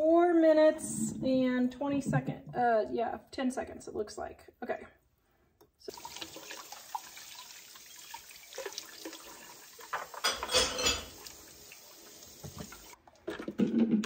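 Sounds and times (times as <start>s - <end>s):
water splashing: 5.9s - 10.4s
faucet water running into pot: 5.9s - 13.0s
dishes clattering: 9.8s - 11.2s.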